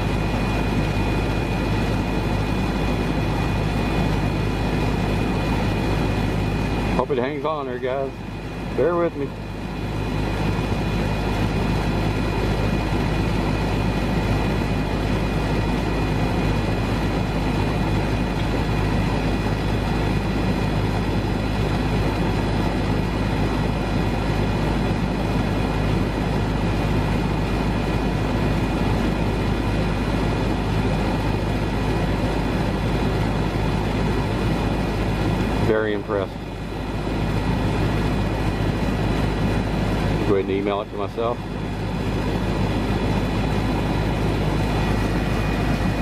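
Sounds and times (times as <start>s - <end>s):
air conditioner unit humming: 0.0s - 46.0s.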